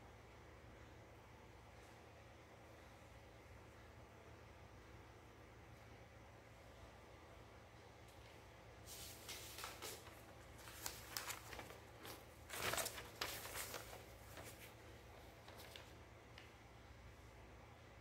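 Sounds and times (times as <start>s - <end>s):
paper rustling: 8.8s - 16.5s.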